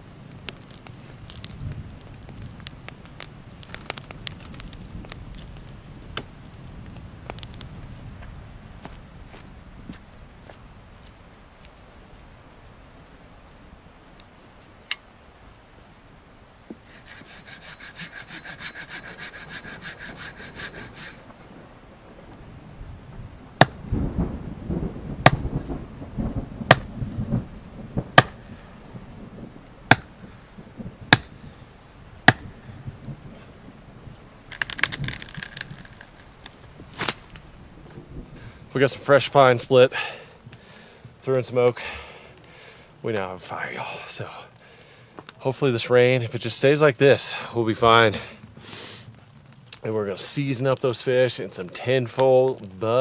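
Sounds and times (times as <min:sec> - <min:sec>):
fast rasping: 0:16.9 - 0:21.2
hatchet chopping wood: 0:25.2 - 0:25.4, 0:26.7 - 0:26.9, 0:28.2 - 0:28.4, 0:29.9 - 0:30.1, 0:31.1 - 0:31.3, 0:32.3 - 0:32.5.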